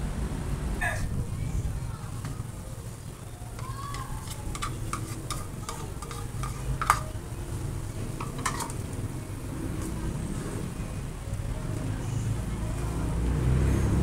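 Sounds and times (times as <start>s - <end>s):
food sizzling in frying pan: 2.5s - 10.4s
spoon scraping pan: 3.6s - 7.2s, 8.0s - 9.0s.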